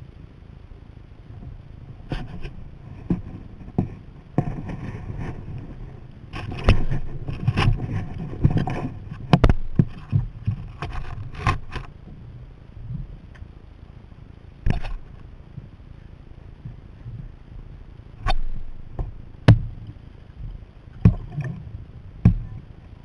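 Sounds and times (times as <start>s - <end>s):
paddle knocking on kayak: 22.2s - 22.5s.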